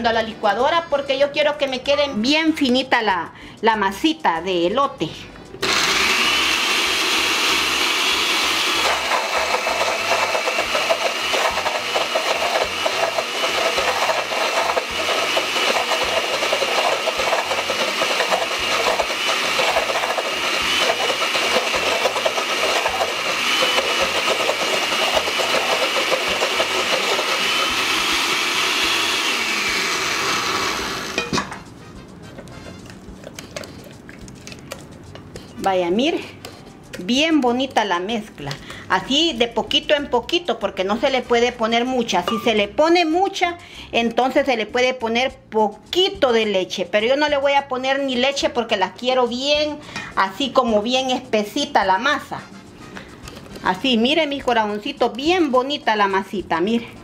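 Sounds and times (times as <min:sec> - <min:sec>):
blender grinding: 0:05.6 - 0:31.5.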